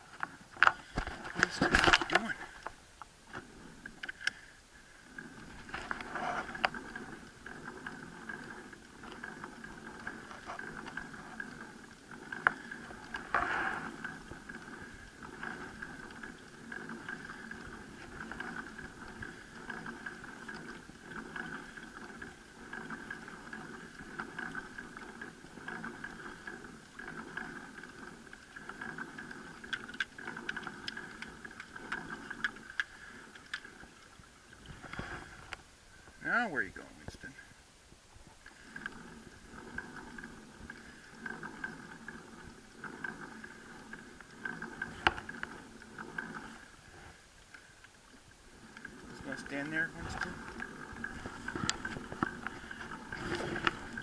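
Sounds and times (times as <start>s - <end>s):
pedal chain drive whirring: 3.3s - 36.2s, 38.4s - 54.0s.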